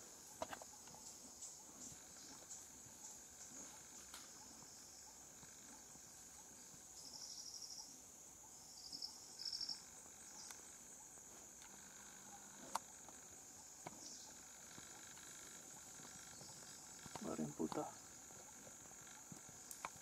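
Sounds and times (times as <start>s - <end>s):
fast pulsed insect chirping: 0.0s - 20.0s
insects droning: 0.0s - 20.0s.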